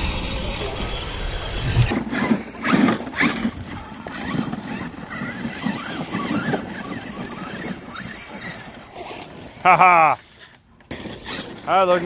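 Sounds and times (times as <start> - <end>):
electric motor whine: 1.9 - 9.7
tyres churning through dirt: 1.9 - 12.0.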